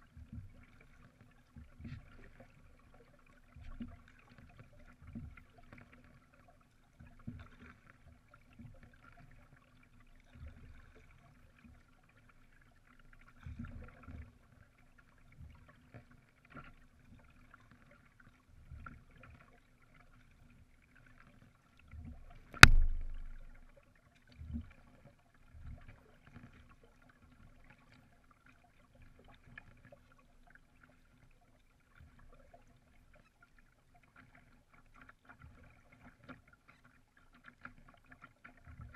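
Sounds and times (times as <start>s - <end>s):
paddle strokes in water: 0.0s - 38.9s
sharp knock: 22.6s - 23.5s
water slapping canoe hull: 22.6s - 23.6s.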